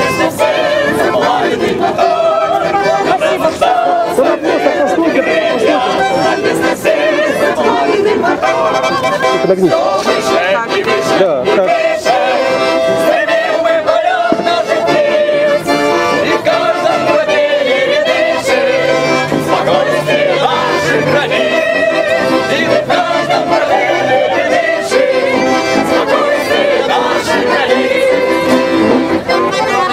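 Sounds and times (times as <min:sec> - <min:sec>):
accordions playing chords: 0:00.0 - 0:29.9
group singing: 0:00.0 - 0:29.9.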